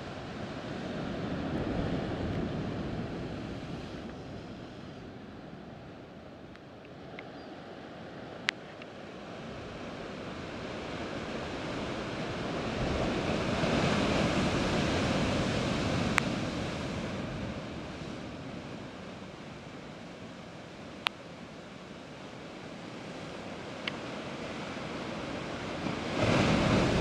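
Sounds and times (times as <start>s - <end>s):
surf breaking on rocks: 24.9s - 27.0s.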